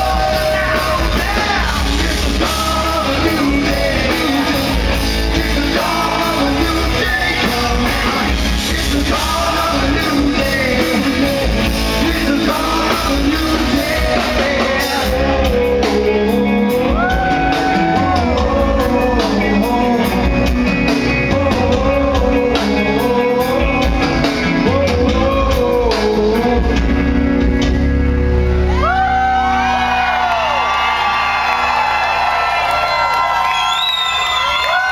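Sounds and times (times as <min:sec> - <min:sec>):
man singing: 0:00.0 - 0:27.2
live rock band playing: 0:00.0 - 0:34.9.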